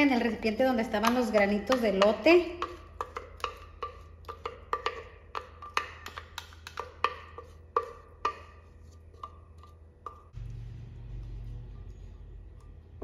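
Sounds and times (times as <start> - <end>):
wooden spatula knocking in blender jar: 0.8 - 10.4.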